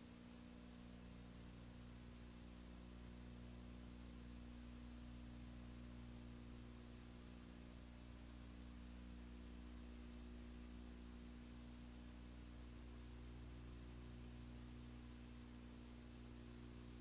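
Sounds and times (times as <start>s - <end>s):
faint high-pitched whine: 0.0s - 17.0s
low electrical hum: 0.0s - 17.0s.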